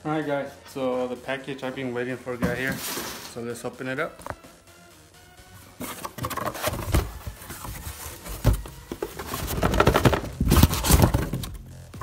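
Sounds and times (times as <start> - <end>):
cardboard box rustling and scraping: 5.8 - 11.6.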